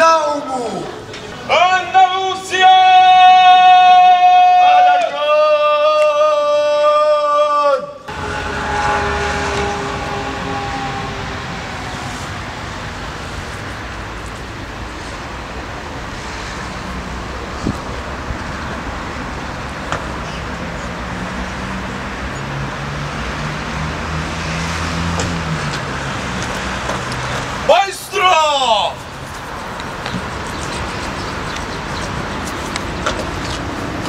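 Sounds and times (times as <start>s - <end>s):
road traffic noise: 0.0s - 34.0s
passing vehicle engine hum: 8.1s - 34.0s.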